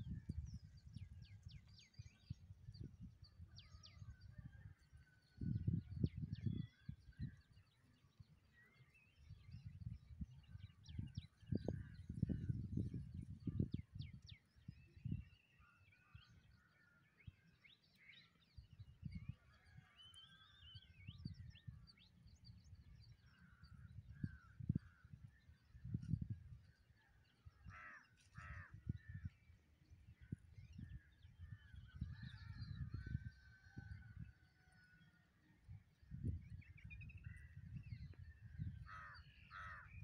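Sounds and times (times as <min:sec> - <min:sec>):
wind buffeting microphone: 0:00.0 - 0:17.7, 0:18.5 - 0:19.8, 0:20.6 - 0:40.0
birds chirping and calling: 0:36.2 - 0:40.0.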